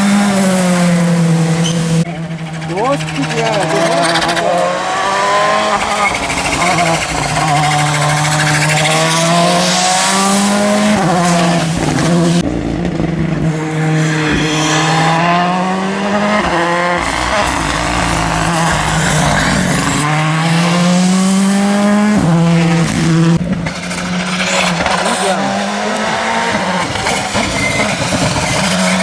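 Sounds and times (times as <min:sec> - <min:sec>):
rally car engines revving past: 0:00.0 - 0:29.0.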